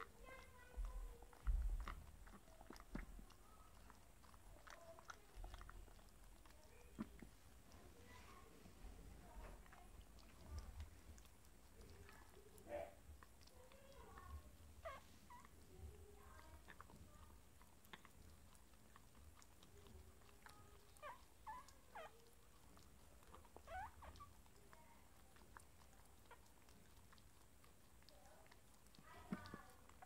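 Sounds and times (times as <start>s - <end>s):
dog licking and smacking: 0.0s - 30.0s
puppy squeaking: 13.9s - 15.6s, 19.7s - 22.4s, 23.2s - 24.9s.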